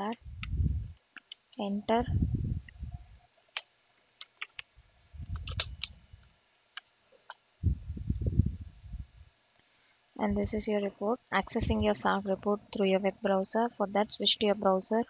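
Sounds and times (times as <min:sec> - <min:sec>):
low muffled rumbles: 0:00.0 - 0:01.0, 0:01.6 - 0:03.2, 0:04.8 - 0:06.2, 0:07.6 - 0:09.3, 0:10.2 - 0:13.2
keyboard keystrokes clicking: 0:03.5 - 0:04.7.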